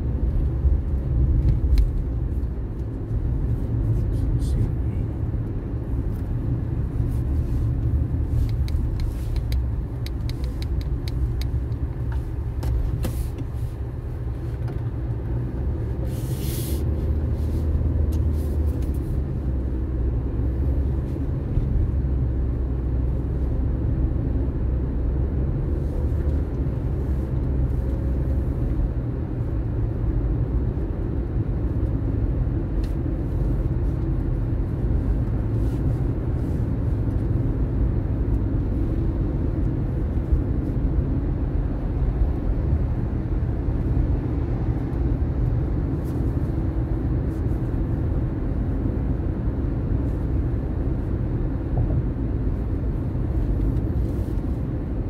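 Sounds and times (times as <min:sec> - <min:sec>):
car road and engine rumble: 0:00.0 - 0:55.0
brief hiss: 0:16.1 - 0:16.8.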